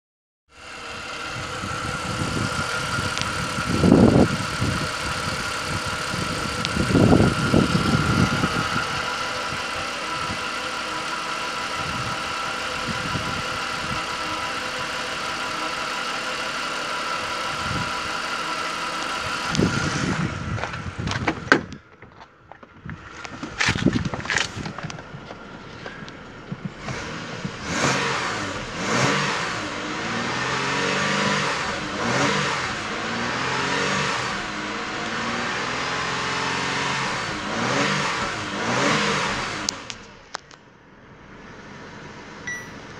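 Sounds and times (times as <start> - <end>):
high whine: 0.5 - 21.0, 42.4 - 42.9
car engine idling: 0.5 - 42.9.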